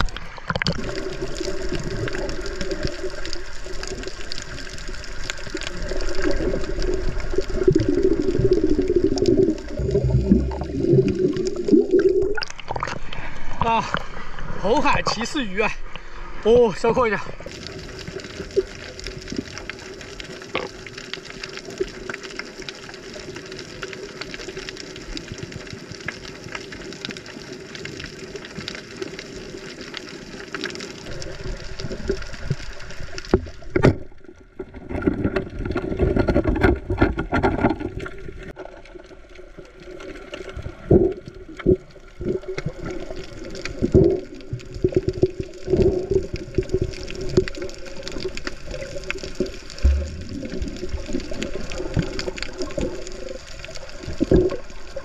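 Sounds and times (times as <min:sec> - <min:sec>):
bubbling surges: 0:00.0 - 0:13.1, 0:38.0 - 0:55.0
underwater gurgling and sloshing: 0:00.0 - 0:55.0.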